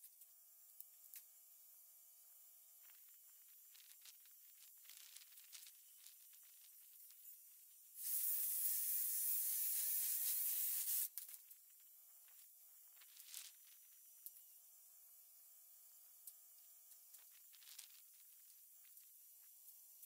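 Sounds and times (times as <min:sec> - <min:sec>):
power tool cutting wood: 0:08.0 - 0:11.1.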